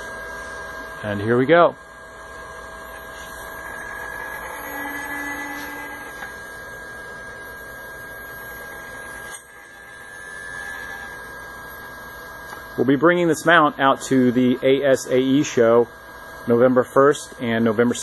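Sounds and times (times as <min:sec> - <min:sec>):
motors whining: 0:02.5 - 0:12.7.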